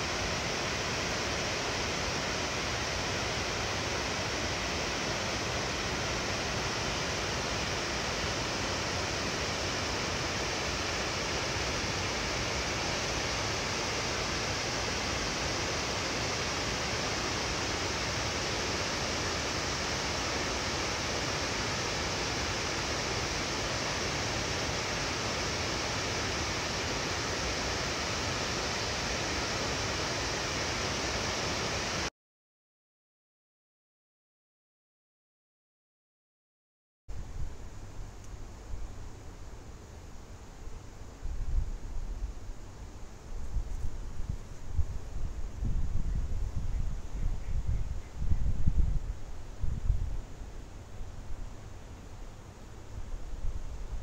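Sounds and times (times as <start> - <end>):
water rushing over weir: 0.0 - 32.1.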